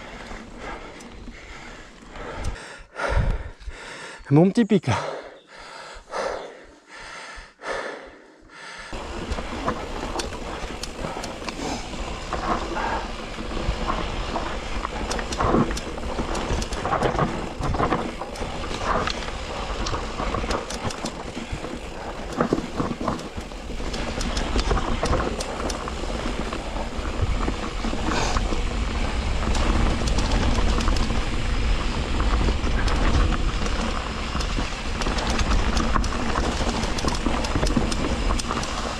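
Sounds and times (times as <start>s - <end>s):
bike riding rumble on trail: 0.0s - 4.2s, 5.4s - 38.9s
rattles and clicks: 9.0s - 38.9s.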